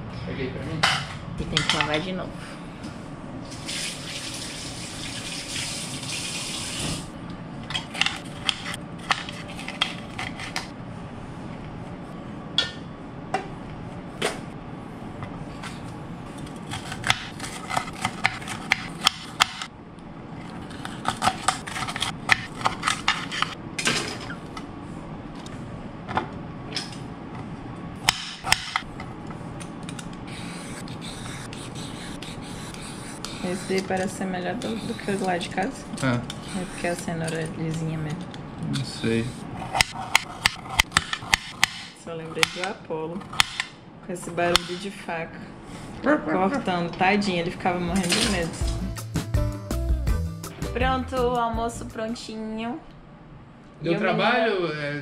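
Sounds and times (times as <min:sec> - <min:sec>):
peeler scraping carrot: 0:30.3 - 0:35.4, 0:36.0 - 0:37.1.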